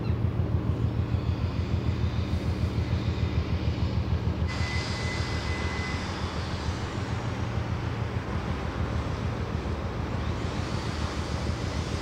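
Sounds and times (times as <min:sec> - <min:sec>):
ship diesel engine throbbing: 0:00.1 - 0:12.0.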